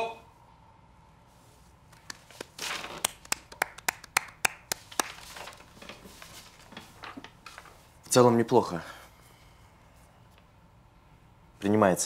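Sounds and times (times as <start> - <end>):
person clapping slowly: 2.0 - 5.3.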